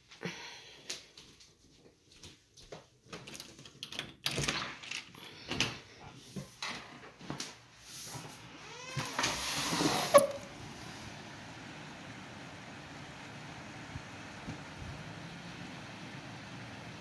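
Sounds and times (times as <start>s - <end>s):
squeaky scrape: 8.2s - 10.5s.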